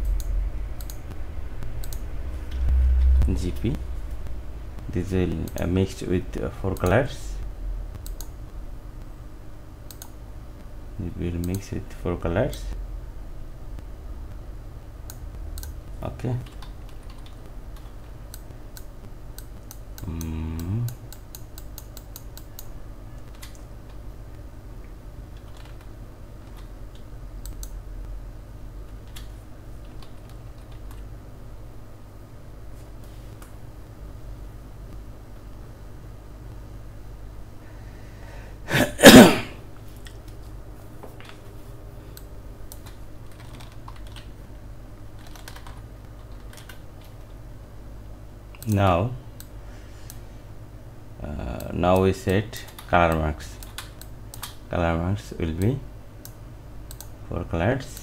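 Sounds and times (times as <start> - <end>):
keyboard and mouse clicks: 0.0 - 1.2, 1.8 - 3.1, 7.9 - 8.4, 9.9 - 10.2, 15.1 - 24.0, 25.3 - 27.8, 42.2 - 44.4, 45.2 - 47.4, 51.6 - 54.6, 55.6 - 57.1
steady low hum: 0.0 - 58.0
person humming: 20.0 - 21.0
person coughing: 38.7 - 39.6.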